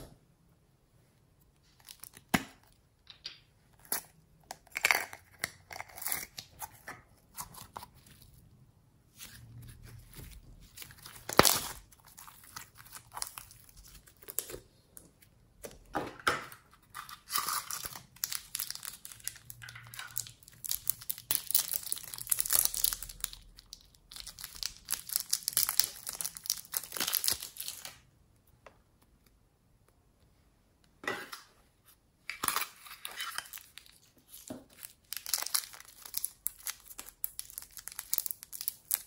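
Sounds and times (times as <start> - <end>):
plastic wrapper crinkling: 9.2 - 14.7, 16.8 - 28.0, 32.3 - 39.0.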